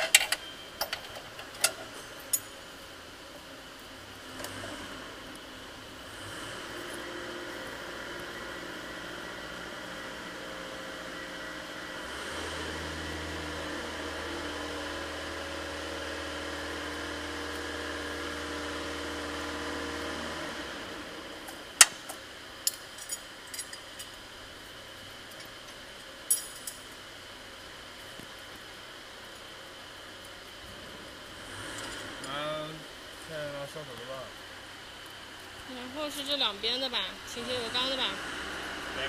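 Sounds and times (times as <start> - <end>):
metallic clinks: 0.0 - 2.6, 26.3 - 26.9.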